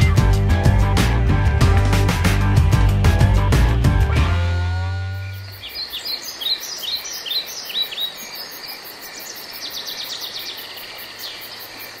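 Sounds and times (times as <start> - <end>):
high-pitched insect pulsing: 4.7 - 9.6
small birds chirping: 5.0 - 12.0.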